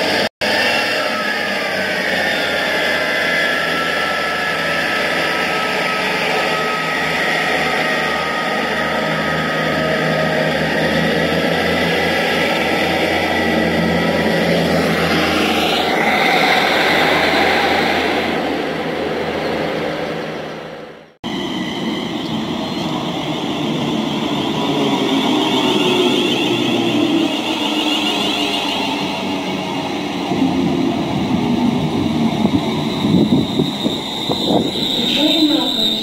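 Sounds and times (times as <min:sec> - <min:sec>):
rail noise: 0:00.0 - 0:36.0
model train mechanical whine: 0:32.4 - 0:36.0.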